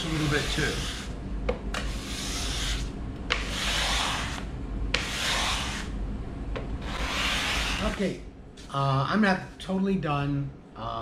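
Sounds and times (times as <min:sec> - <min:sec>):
card scraper scraping wood: 0:01.8 - 0:04.4, 0:05.0 - 0:05.9, 0:06.8 - 0:08.0.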